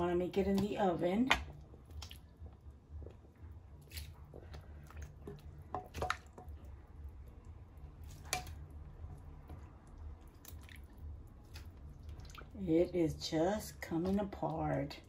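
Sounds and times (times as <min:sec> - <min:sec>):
wet squelching: 0:00.0 - 0:15.0
broth dripping into pot: 0:00.3 - 0:15.0.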